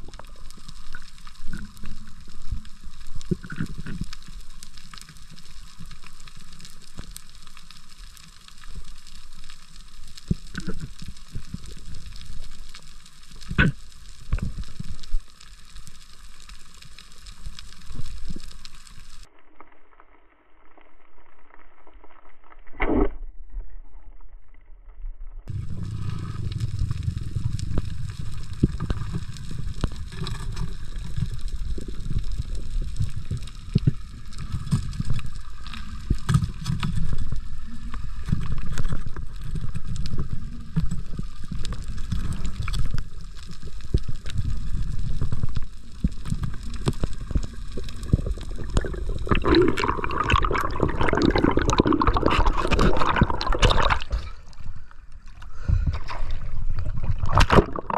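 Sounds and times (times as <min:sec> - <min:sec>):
muffled underwater rumble: 0:00.0 - 0:57.9
rushing water: 0:46.0 - 0:54.6, 0:56.1 - 0:57.9.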